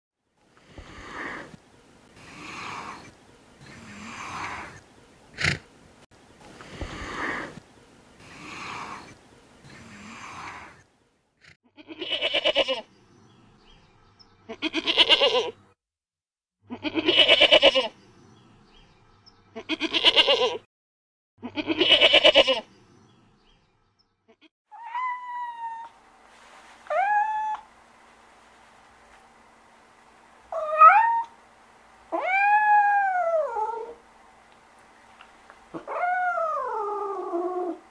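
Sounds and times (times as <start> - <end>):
giraffe breathy sounds: 0.6 - 5.7, 6.5 - 7.6, 8.2 - 10.9
goat bleating: 11.8 - 12.9, 14.5 - 15.6, 16.7 - 17.9, 19.6 - 20.6, 21.4 - 22.6
cat meowing: 24.7 - 26.0, 26.9 - 27.6, 30.5 - 31.4, 32.1 - 34.0.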